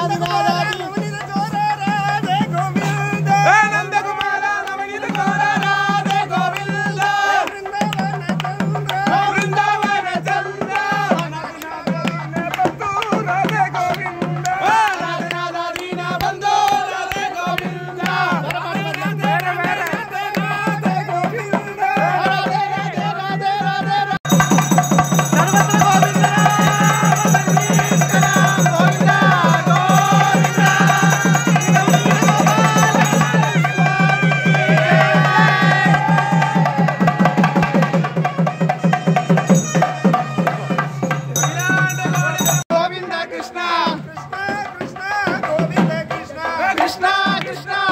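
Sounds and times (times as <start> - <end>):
fast steady drumming: 0.0 - 47.9
nadaswaram pipes melody: 37.7 - 42.6.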